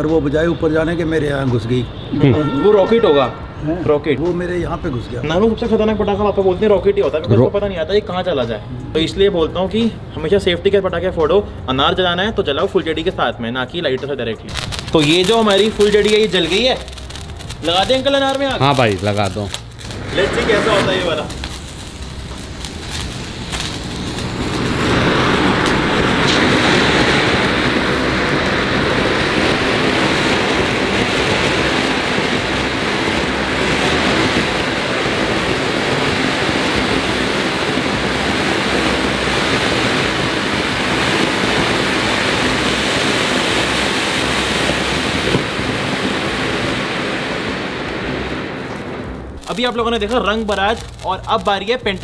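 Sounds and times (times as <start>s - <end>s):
fountain firework hissing: 14.5s - 52.0s.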